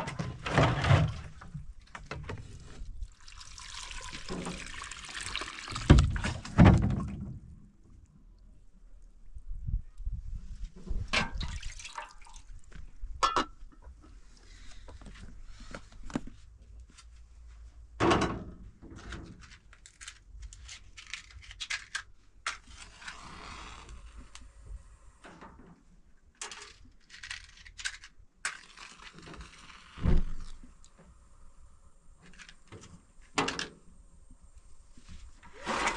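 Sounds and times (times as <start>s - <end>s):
metal pots and lids clinking: 13.2s - 13.6s.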